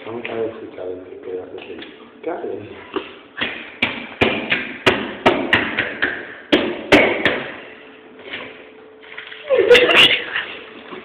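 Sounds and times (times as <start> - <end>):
sharp knocks and thuds: 3.0 - 7.6.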